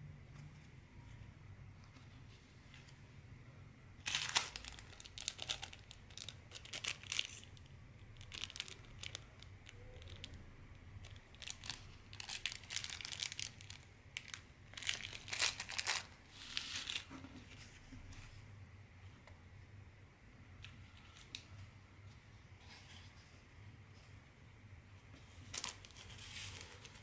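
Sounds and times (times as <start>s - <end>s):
plastic bag crinkling: 4.0s - 10.4s, 11.0s - 17.1s.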